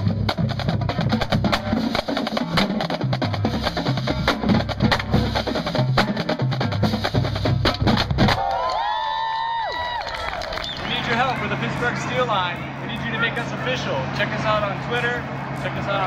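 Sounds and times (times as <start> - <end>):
tuned bass drums: 0.0 - 8.4.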